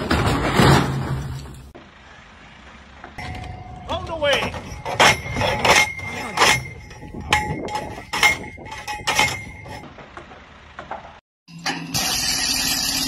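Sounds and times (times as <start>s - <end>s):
metal clanking strikes with ring: 3.2s - 9.8s.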